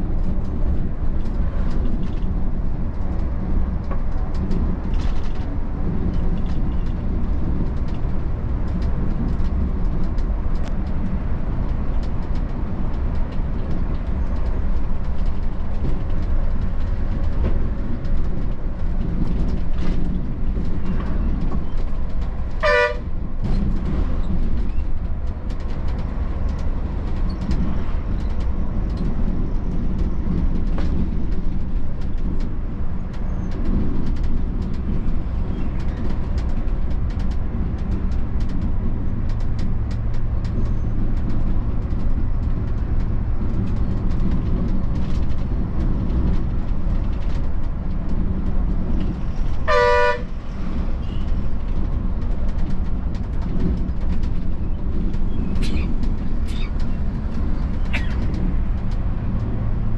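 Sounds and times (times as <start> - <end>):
road noise: 0.0 - 59.9.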